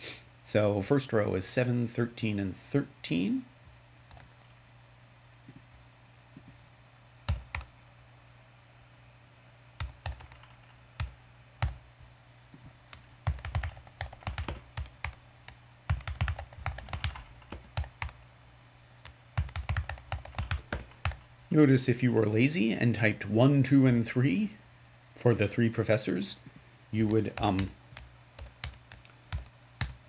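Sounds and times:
computer keyboard typing: 4.1s - 4.4s, 7.3s - 7.7s, 9.8s - 11.8s, 12.9s - 18.2s, 19.0s - 21.2s, 27.0s - 30.0s.

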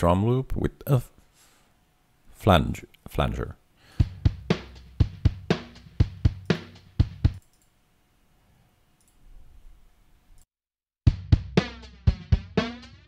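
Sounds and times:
flanged drum loop: 3.9s - 7.4s, 11.1s - 13.0s.

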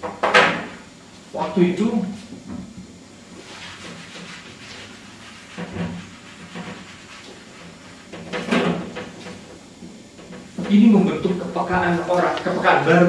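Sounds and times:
eraser rubbing whiteboard: 3.3s - 9.4s.

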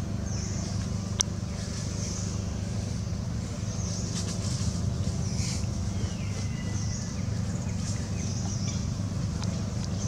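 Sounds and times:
motor running low rumble: 0.0s - 10.0s.

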